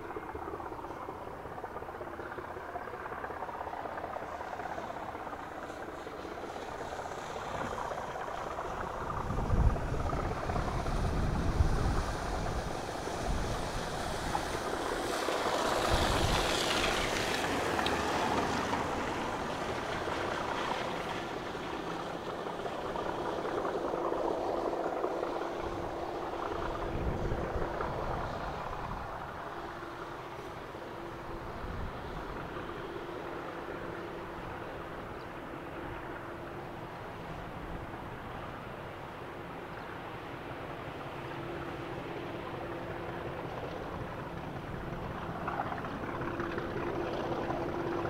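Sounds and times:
diesel locomotive engine drone: 0.0 - 48.0
wind gusts on microphone: 4.0 - 35.0.

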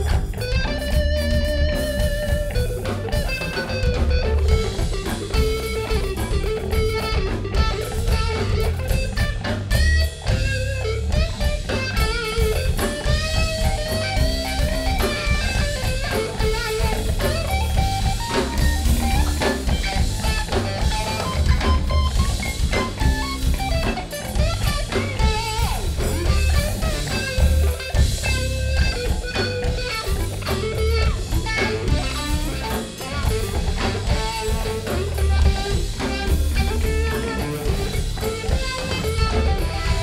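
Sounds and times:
bass guitar: 0.0 - 40.0
drum kit: 0.0 - 40.0
electric guitar lead: 0.0 - 40.0.

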